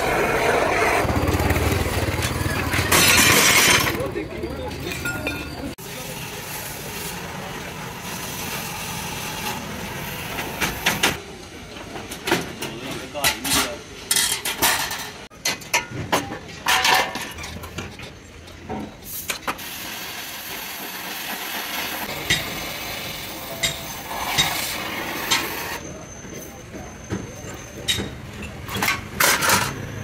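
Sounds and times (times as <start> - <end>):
cutting torch hissing: 5.8 - 11.1, 19.1 - 25.8
metal clanks and knocks: 11.8 - 19.0.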